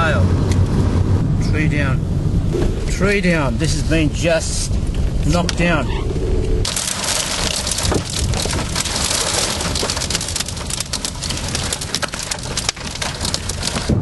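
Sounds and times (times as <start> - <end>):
heavy rain on car roof: 6.6 - 14.0.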